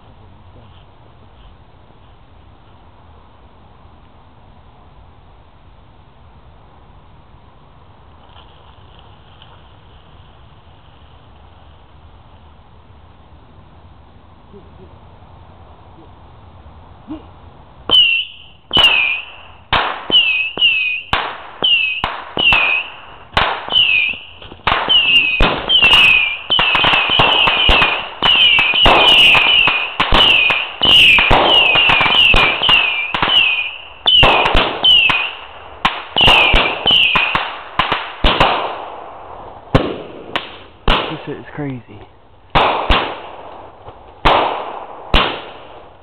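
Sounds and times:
fireworks banging: 0:17.9 - 0:46.0.

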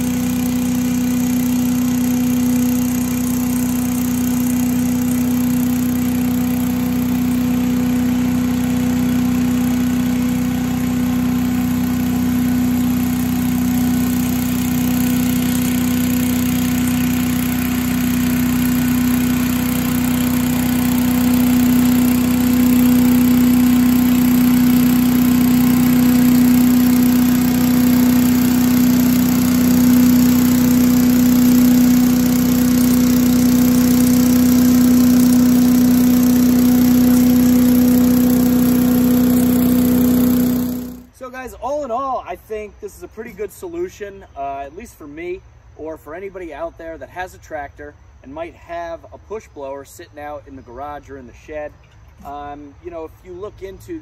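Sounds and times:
leaf blower running: 0:00.0 - 0:41.2
tractor engine: 0:00.0 - 0:41.2.

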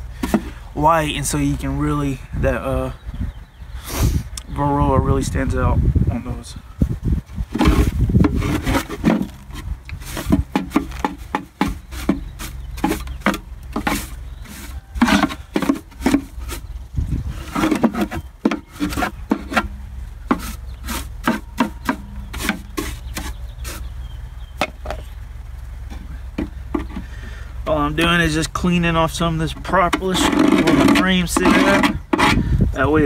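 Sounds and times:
metal tool scraping wood: 0:00.2 - 0:00.6, 0:07.5 - 0:25.0, 0:25.9 - 0:27.1, 0:29.5 - 0:32.6.

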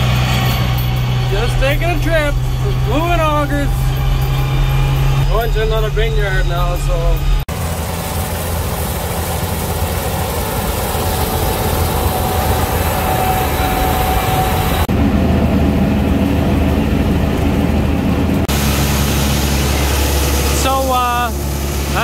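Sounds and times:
combine harvester running: 0:00.0 - 0:22.0
low engine idle: 0:00.1 - 0:13.5.

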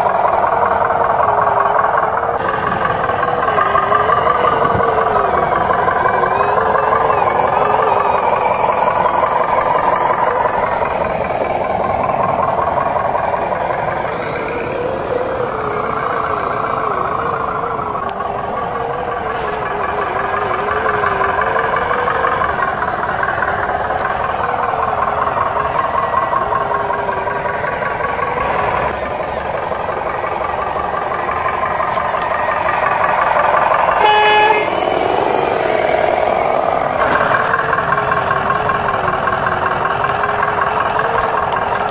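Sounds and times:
toy truck motor whine: 0:00.0 - 0:41.9
short horn toot: 0:34.0 - 0:34.8.

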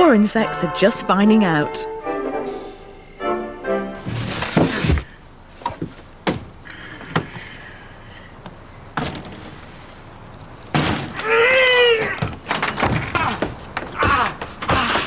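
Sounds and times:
man crying out in pain: 0:02.5 - 0:03.7, 0:13.1 - 0:15.0.

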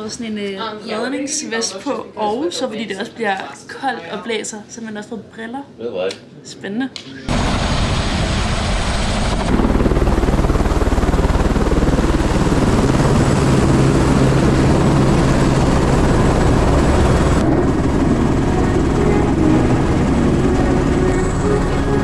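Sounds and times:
helicopter rotor chopping: 0:07.3 - 0:22.0.

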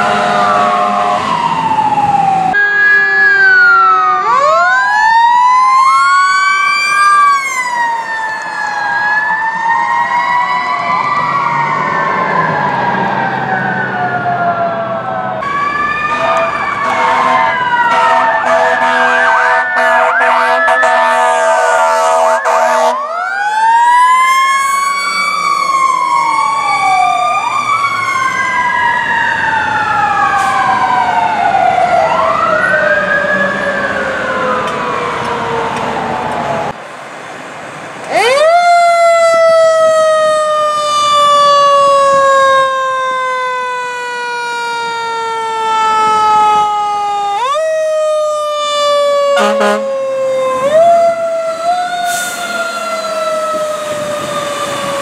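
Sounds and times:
fire truck sirens wailing: 0:00.0 - 0:55.0
air horn blasts: 0:16.1 - 0:23.0, 0:49.4 - 0:49.9.

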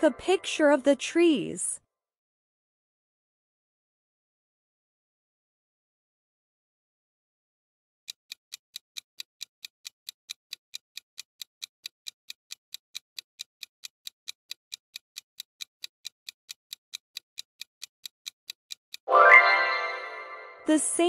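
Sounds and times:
clock ticking: 0:00.0 - 0:00.6, 0:08.1 - 0:19.1.

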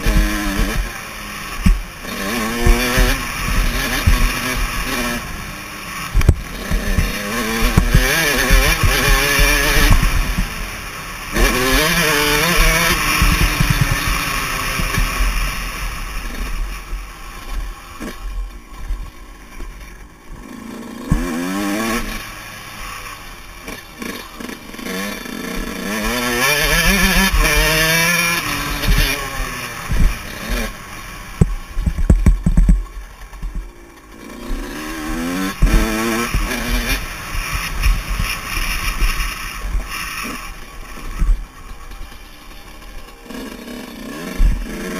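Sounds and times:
two-stroke engine revving: 0:00.0 - 0:44.9
low thumps over bumps: 0:06.2 - 0:10.6, 0:29.9 - 0:30.7, 0:31.4 - 0:33.8, 0:35.4 - 0:38.3.

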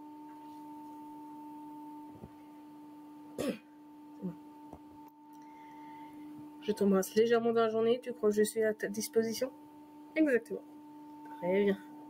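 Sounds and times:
low two-tone hum: 0:00.0 - 0:12.0
person clearing throat: 0:03.4 - 0:04.4.

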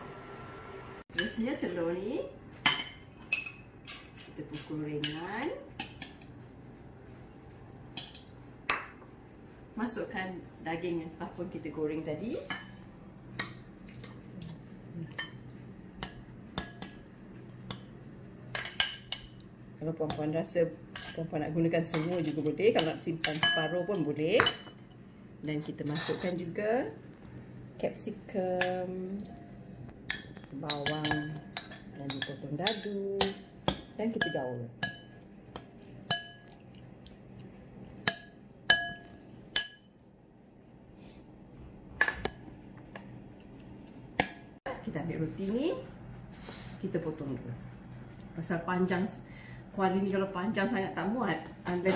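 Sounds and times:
metal spoon clinking glass bowl: 0:21.9 - 0:24.8, 0:36.1 - 0:36.5, 0:38.0 - 0:40.0
metal spoon clinking against bowl: 0:21.9 - 0:24.9, 0:30.1 - 0:36.6, 0:38.0 - 0:40.0.

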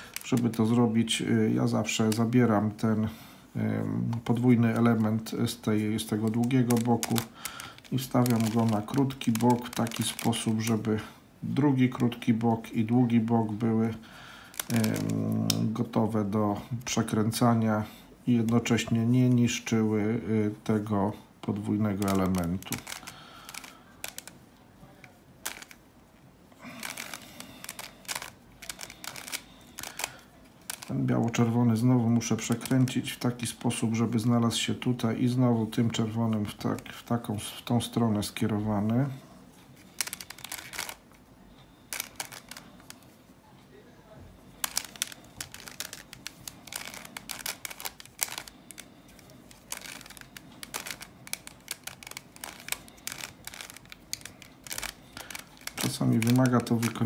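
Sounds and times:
puzzle cube plastic clicks: 0:00.0 - 0:02.6, 0:04.1 - 0:16.0, 0:20.8 - 0:24.4, 0:25.0 - 0:25.8, 0:26.6 - 0:34.0, 0:39.8 - 0:41.2, 0:41.8 - 0:43.1, 0:44.6 - 0:57.0.

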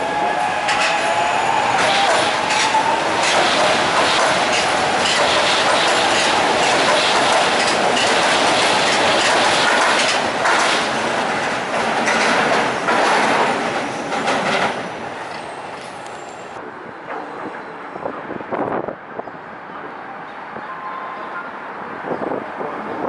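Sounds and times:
elevated train passing: 0:00.0 - 0:21.1
train wheels clattering: 0:01.8 - 0:16.1.

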